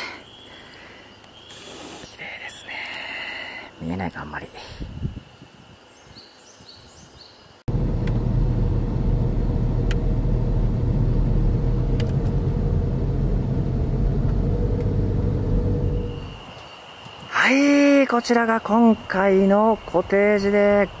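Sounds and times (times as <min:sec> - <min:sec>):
faint outdoor ambience: 0:00.0 - 0:21.0
car engine and tyres rumbling: 0:07.7 - 0:16.4.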